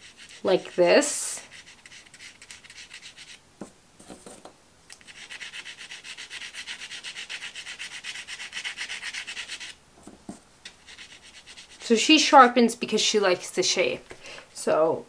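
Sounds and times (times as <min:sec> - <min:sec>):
pastel scratching on paper: 0:00.0 - 0:03.4, 0:05.0 - 0:11.9.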